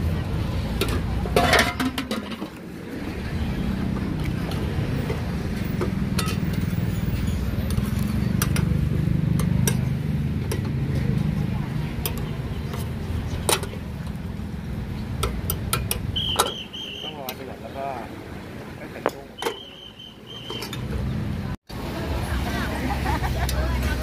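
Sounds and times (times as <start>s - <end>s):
metal pans clinking: 0.8s - 2.6s, 6.1s - 10.7s.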